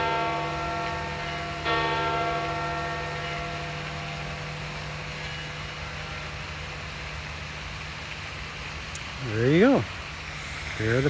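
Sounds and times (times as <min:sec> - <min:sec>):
large church bell tolling: 0:00.0 - 0:06.4.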